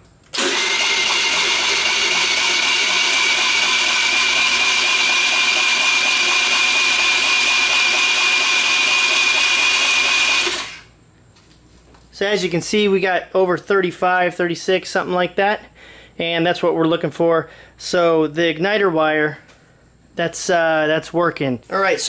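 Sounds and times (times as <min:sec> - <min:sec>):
starter motor cranking: 0:00.3 - 0:10.9.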